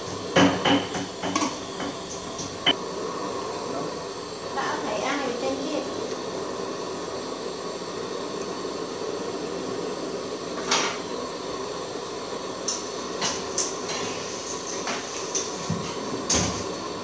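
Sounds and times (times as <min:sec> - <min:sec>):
pot hissing on stove: 0:00.0 - 0:17.0.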